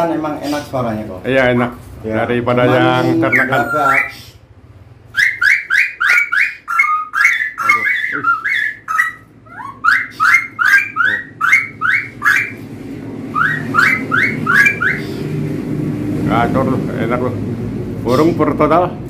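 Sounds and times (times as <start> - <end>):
bird whistling song: 2.7 - 4.4, 5.1 - 12.6, 13.3 - 15.3.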